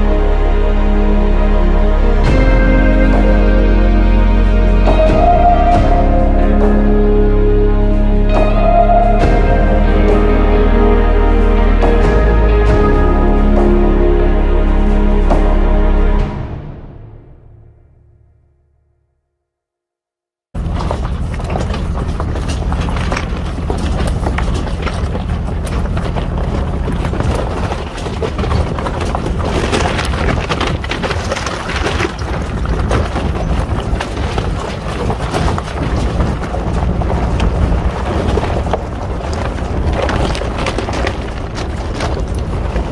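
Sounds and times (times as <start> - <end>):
truck engine running low: 20.6 - 42.9
tyres crunching over gravel: 20.6 - 42.9
tyres knocking against rocks: 20.6 - 42.9.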